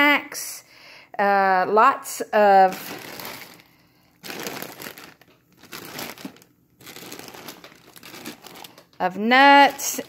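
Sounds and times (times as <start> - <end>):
plastic bags crinkling: 2.5 - 10.0.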